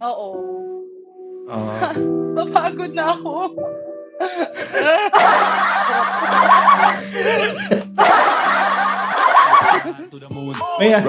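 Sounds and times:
people laughing hard: 4.3s - 10.2s.

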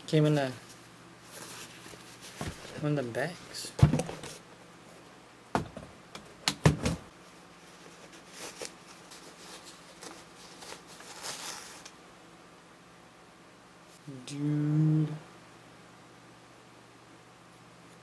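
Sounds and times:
knocks of cardboard box handled: 3.8s - 4.3s.

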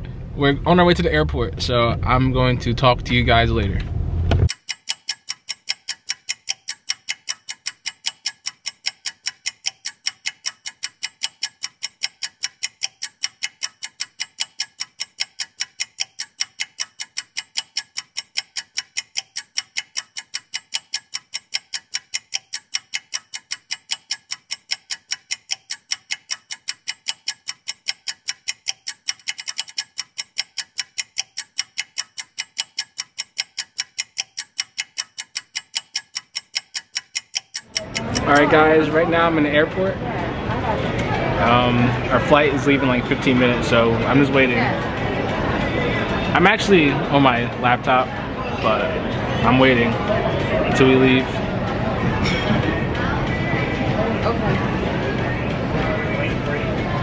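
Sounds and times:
clock-like ticking: 4.5s - 39.0s.

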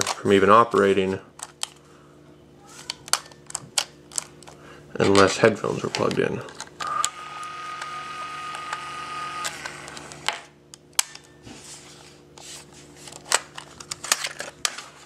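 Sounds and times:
tape mechanism whine: 6.6s - 11.6s.

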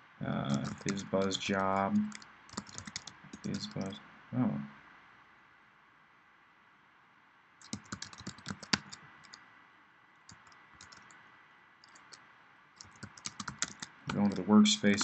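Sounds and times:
typing on a computer keyboard: 0.5s - 3.9s, 7.6s - 9.4s, 10.3s - 11.2s, 11.8s - 12.2s, 12.8s - 15.0s.

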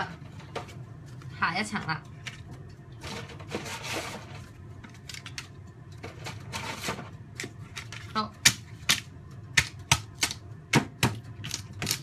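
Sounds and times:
pasta sheets scraping in dish: 3.1s - 4.4s.

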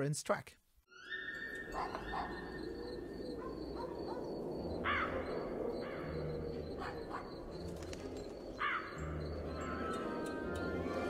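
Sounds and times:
crow cawing: 4.8s - 7.4s, 8.6s - 10.0s.

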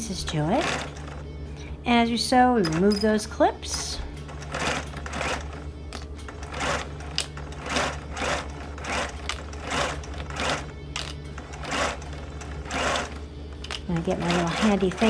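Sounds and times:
sewing machine stitching: 0.4s - 1.2s, 4.3s - 5.6s, 6.3s - 10.7s, 11.4s - 13.2s, 13.9s - 15.0s.

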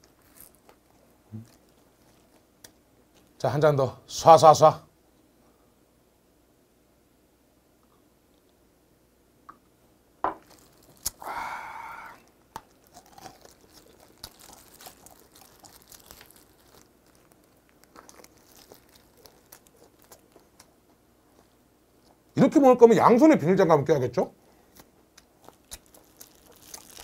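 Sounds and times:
rustling: 0.0s - 2.4s, 12.2s - 20.6s
meat tearing crackles: 0.0s - 3.3s, 10.4s - 11.6s, 12.2s - 20.7s, 24.7s - 27.0s
chewing: 12.6s - 22.2s, 24.7s - 27.0s.

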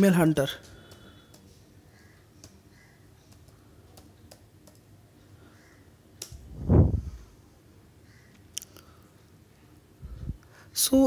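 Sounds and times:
keyboard keystrokes: 3.3s - 4.9s.

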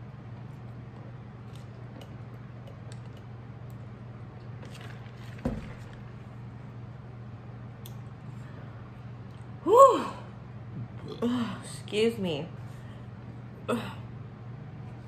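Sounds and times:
steady low hum: 0.0s - 15.0s
cup thumping on table: 5.4s - 6.0s.

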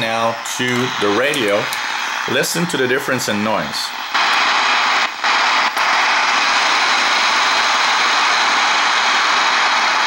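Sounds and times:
radio static hiss: 0.0s - 10.0s.

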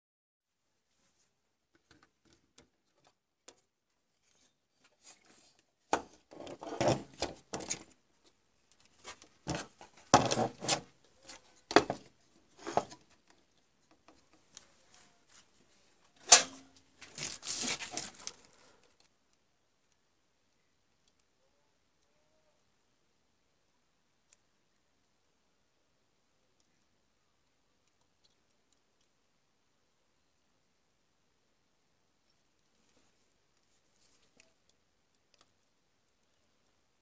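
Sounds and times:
circuit board knocking and scraping: 9.5s - 10.8s.

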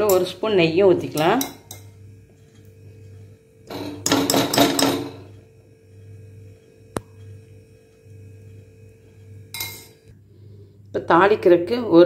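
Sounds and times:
metal spoon clanking on pot rim: 0.0s - 0.4s, 1.0s - 2.0s, 3.7s - 5.3s, 9.5s - 10.0s.

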